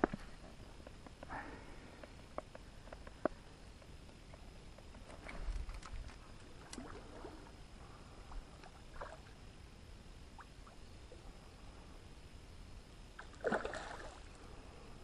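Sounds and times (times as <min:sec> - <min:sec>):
faint water splashes: 0:05.2 - 0:09.5, 0:13.2 - 0:14.6.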